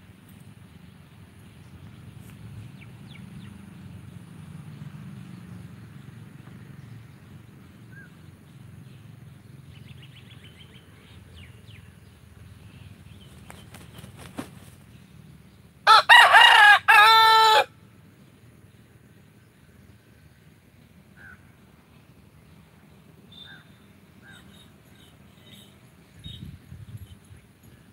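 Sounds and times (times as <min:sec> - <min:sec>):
rooster crowing: 0:15.8 - 0:17.8
faint bird chirps: 0:23.2 - 0:27.9.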